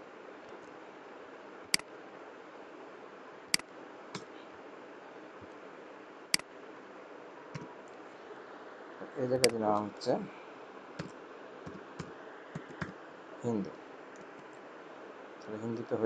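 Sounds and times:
steady hiss: 0:00.0 - 0:16.0
computer mouse clicking: 0:11.7 - 0:13.0.

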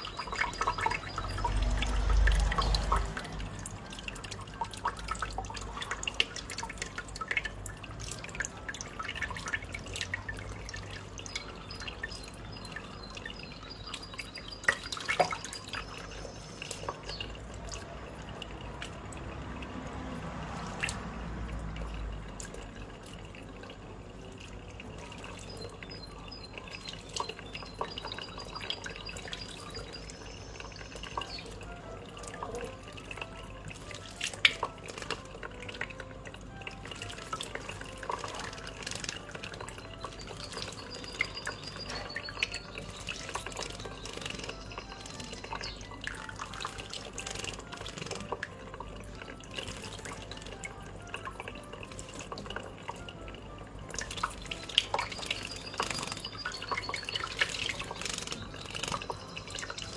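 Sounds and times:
tap water running: 0:00.0 - 0:59.9.

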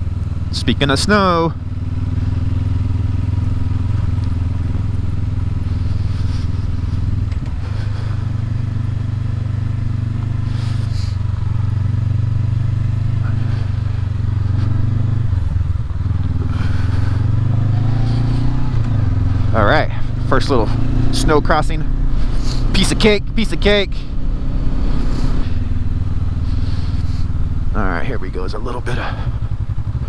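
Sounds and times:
motorcycle engine droning: 0:00.0 - 0:30.0.

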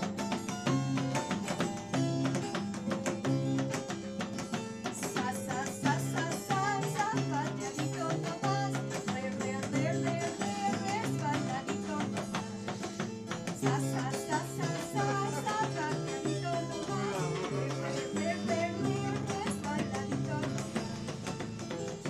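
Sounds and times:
harp playing lively tune: 0:00.0 - 0:05.0, 0:05.7 - 0:22.0
knocking on wooden soundbox: 0:00.0 - 0:22.0
person singing: 0:13.6 - 0:21.2.

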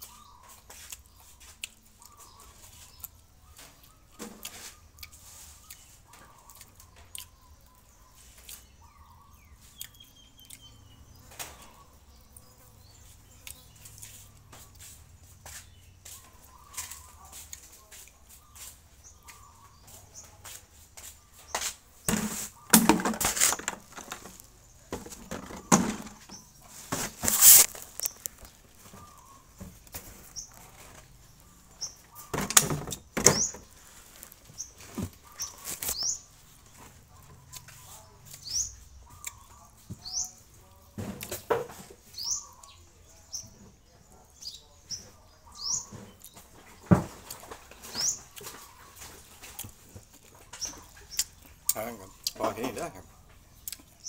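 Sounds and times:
bird chirps: 0:00.0 - 0:49.8
person chewing and smacking: 0:00.5 - 0:02.3, 0:03.8 - 0:07.8, 0:09.6 - 0:10.7, 0:13.4 - 0:14.1, 0:49.2 - 0:52.4, 0:53.6 - 0:54.0.

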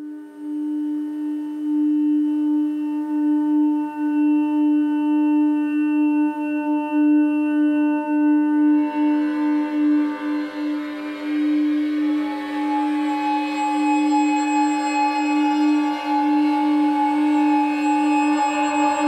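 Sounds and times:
sustained drone tone: 0:07.0 - 0:19.0.

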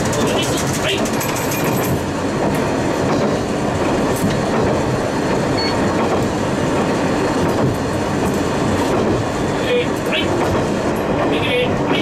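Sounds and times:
railcar engine and wheels on rail: 0:00.0 - 0:12.0.

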